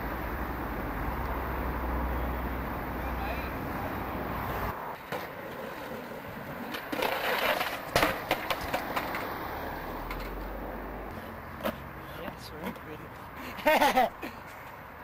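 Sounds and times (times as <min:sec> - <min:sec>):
skateboard wheels rolling on stone: 0:03.6 - 0:12.8
skateboard clattering on flagstones: 0:04.9 - 0:09.4.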